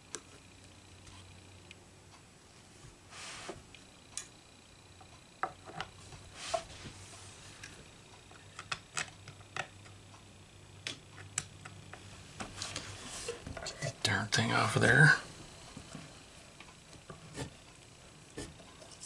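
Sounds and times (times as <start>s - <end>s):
small clicks and taps: 7.6s - 10.0s.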